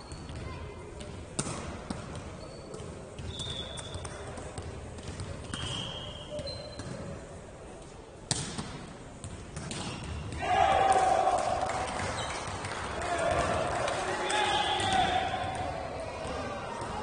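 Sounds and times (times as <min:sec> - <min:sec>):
sports shoes squeaking on floor: 0:00.0 - 0:00.5, 0:02.2 - 0:04.3, 0:05.2 - 0:07.1, 0:12.2 - 0:12.4.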